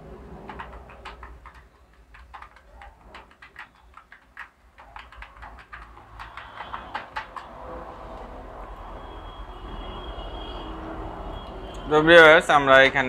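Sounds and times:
keyboard typing clicks: 0.4 - 7.6.

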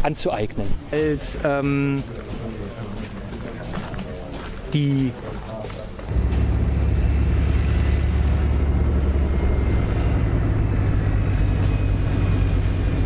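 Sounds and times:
tank engine low rumble: 6.1 - 13.0
faint high whine: 6.2 - 13.0.

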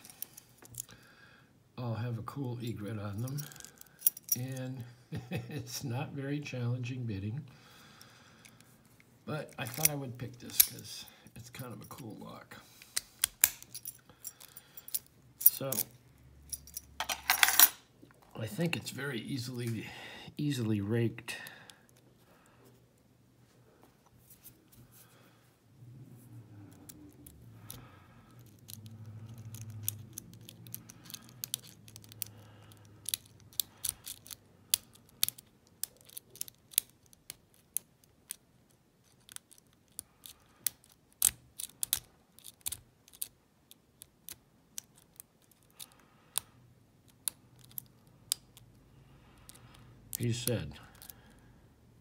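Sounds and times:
lock pick clicking in padlock: 26.8 - 38.4, 39.0 - 48.7.

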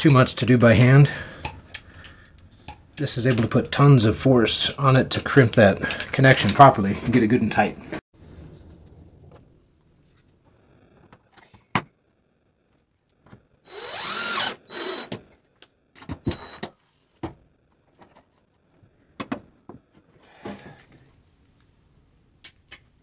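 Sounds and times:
cordless drill driving screws: 13.7 - 15.1.

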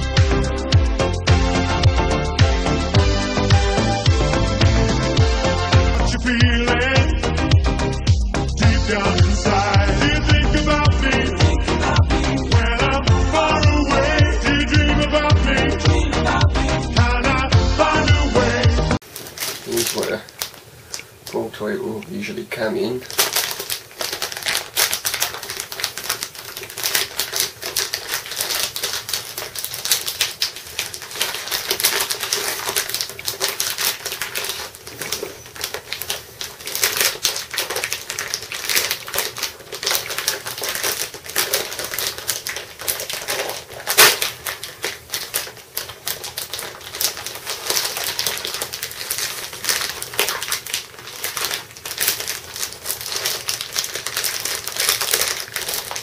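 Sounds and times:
plastic packaging crinkling: 19.0 - 56.0.

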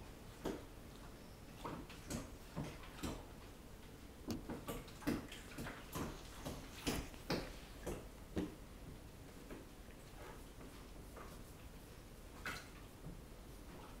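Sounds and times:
kitten licking itself: 4.3 - 8.2.

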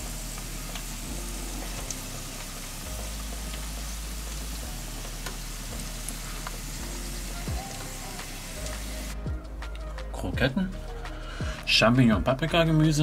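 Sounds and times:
chicken sizzling and crackling: 0.0 - 9.8.

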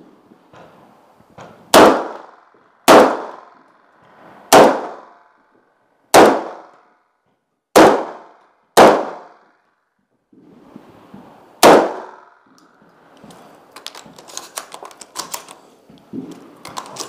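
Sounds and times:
shotgun shots: 1.7 - 3.6, 4.5 - 5.2, 6.1 - 6.7, 7.7 - 9.5, 11.6 - 12.4.

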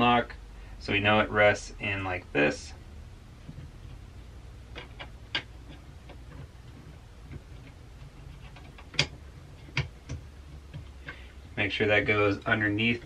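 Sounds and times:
plastic parts clicking and tapping: 3.4 - 11.6.

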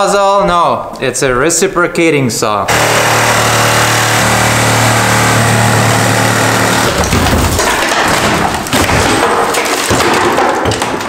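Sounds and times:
reciprocating saw cutting wood: 2.7 - 7.1
boot kicking wood heavy thumps: 6.8 - 9.4.

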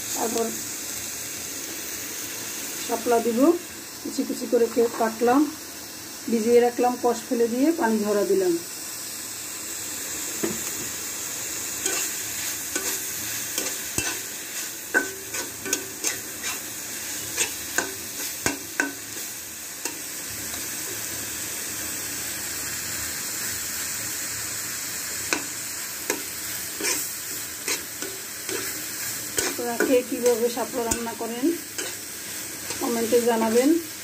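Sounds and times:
food sizzling in oil: 0.0 - 34.0
metal spatula scraping pan: 11.8 - 19.0, 26.1 - 33.6.

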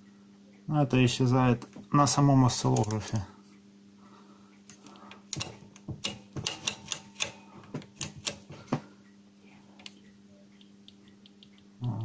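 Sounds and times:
control knobs clicking: 2.5 - 3.3, 4.7 - 8.5.

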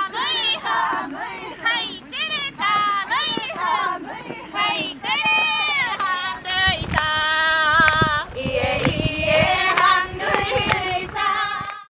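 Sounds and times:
women singing a chant-like song: 0.0 - 11.9.

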